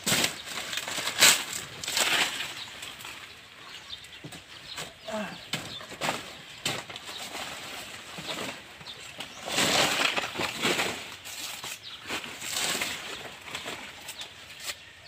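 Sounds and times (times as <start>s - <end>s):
machete cutting leaves: 0.0s - 3.2s, 4.8s - 15.0s
dry leaves crackling and tearing: 0.0s - 15.0s.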